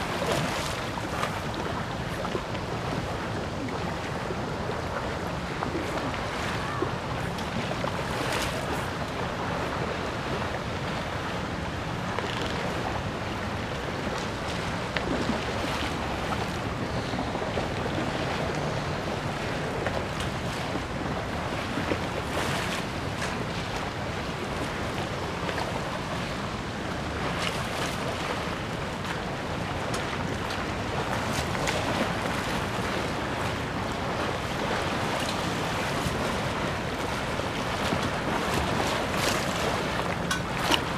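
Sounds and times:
river water lapping: 0:00.0 - 0:40.9
wind blowing across microphone: 0:00.0 - 0:40.9.

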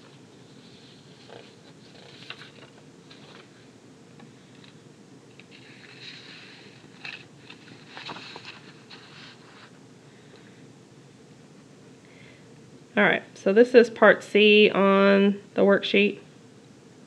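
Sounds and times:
paper rustling and sliding: 0:00.0 - 0:03.7, 0:05.5 - 0:09.8.

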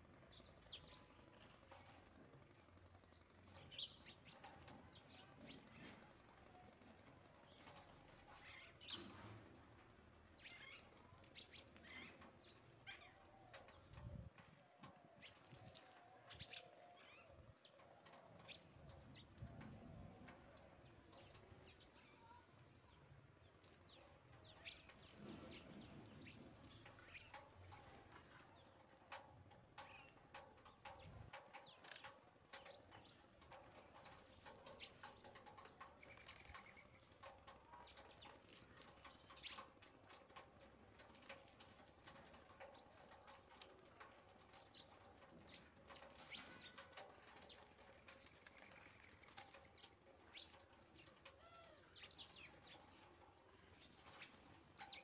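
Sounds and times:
sparrows chirping: 0:00.0 - 0:06.3, 0:07.3 - 0:09.4, 0:10.1 - 0:55.0
house sparrow chirps: 0:47.4 - 0:55.0.

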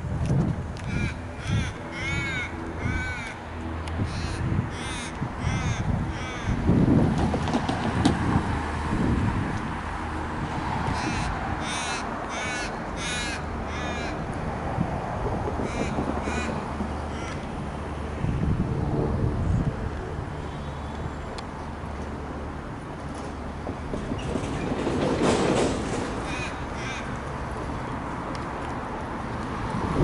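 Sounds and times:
bird harsh calls: 0:04.0 - 0:06.6, 0:11.0 - 0:14.2, 0:15.6 - 0:17.5, 0:26.2 - 0:27.2.

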